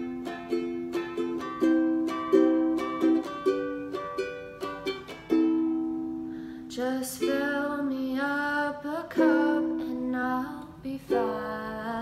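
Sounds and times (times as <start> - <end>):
ukulele strummed chords: 0.0 - 12.0.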